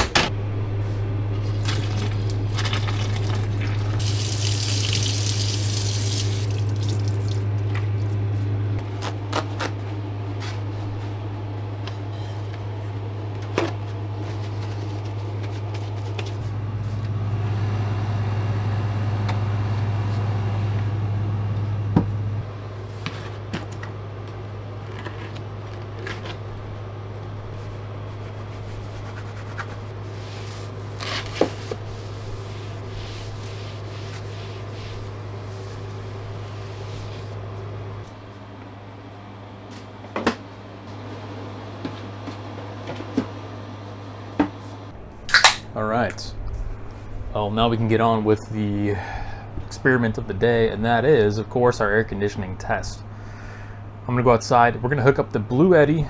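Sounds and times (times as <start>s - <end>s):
steady low hum: 0.0s - 56.0s
faucet running: 1.5s - 7.4s.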